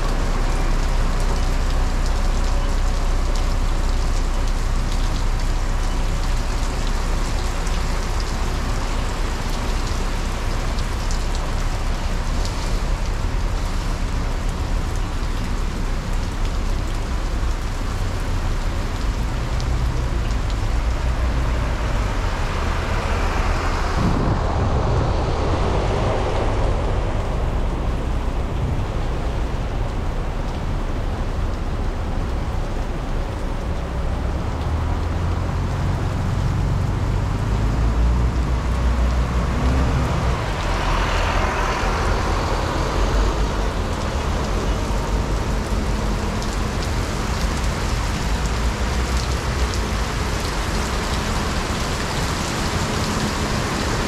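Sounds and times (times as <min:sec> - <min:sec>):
heavy rain falling: 0:00.0 - 0:54.0
traffic rumble: 0:00.0 - 0:54.0
broad rushing sound: 0:21.6 - 0:31.0.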